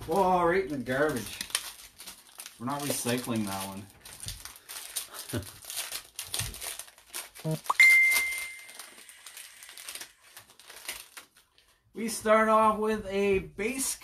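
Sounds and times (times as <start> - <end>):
wrapper crinkling and tearing: 0.1 - 11.8
bright ding: 7.7 - 8.8.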